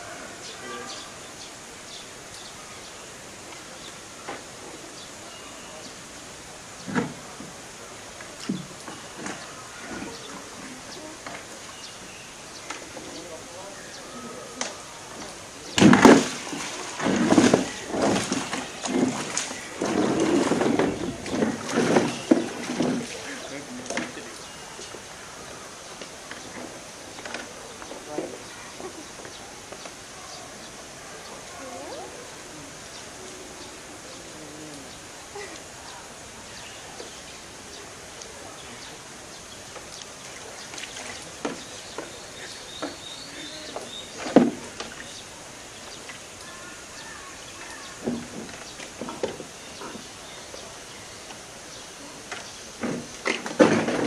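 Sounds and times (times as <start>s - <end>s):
outdoor background noise: 0.0s - 54.0s
water sloshing: 3.5s - 33.8s, 35.3s - 54.0s
plastic tub scraping on rock: 15.8s - 24.2s
water splashing in a tray: 15.8s - 24.2s.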